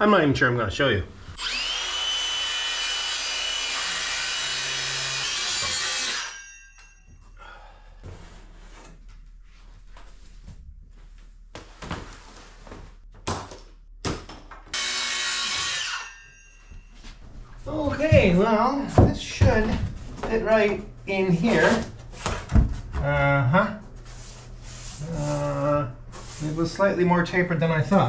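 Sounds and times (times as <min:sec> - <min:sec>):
circular saw cutting plywood: 0:01.4 - 0:06.9, 0:14.7 - 0:16.9
wooden panels knocking and shuffling: 0:17.0 - 0:20.8.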